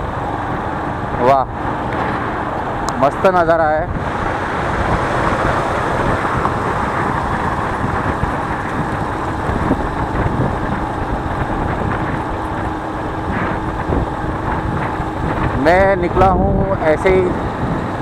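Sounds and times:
road noise: 0.0 - 18.0
wind noise: 0.0 - 18.0
motorcycle engine: 3.9 - 16.3.

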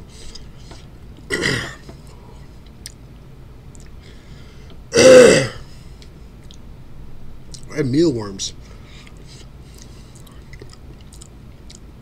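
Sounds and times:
man coughing: 1.3 - 1.8, 5.0 - 5.6.

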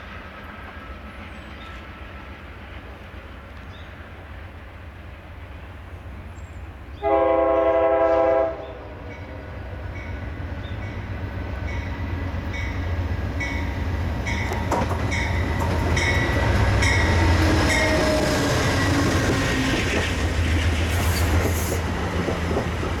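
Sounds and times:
train coaches rolling past: 0.0 - 23.0
train horn blast: 7.0 - 9.2.

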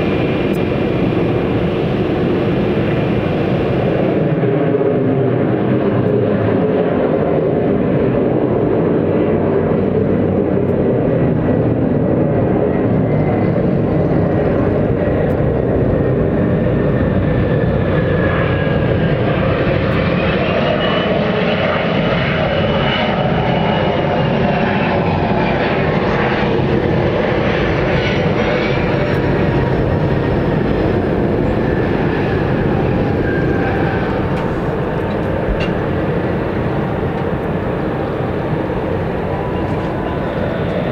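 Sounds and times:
higher engine whine: 0.0 - 40.9
jet engine roar: 0.0 - 40.9
thin engine whine: 25.0 - 40.9.

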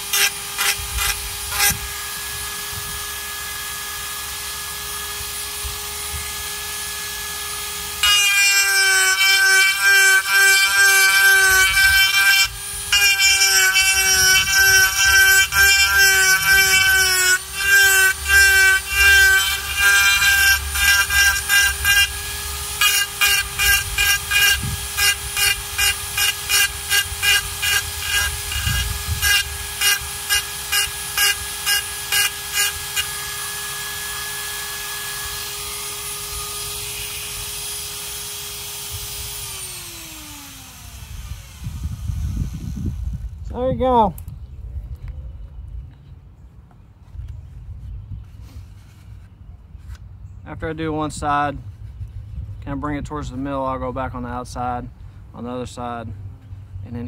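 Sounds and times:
rotary tool grinding gourd: 0.0 - 42.7.

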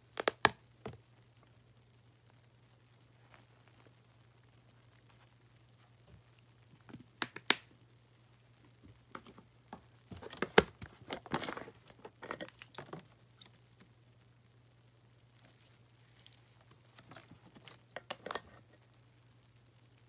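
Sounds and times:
plastic crinkling and tapping: 0.1 - 1.1, 6.0 - 7.7, 8.7 - 13.9, 15.4 - 18.9.

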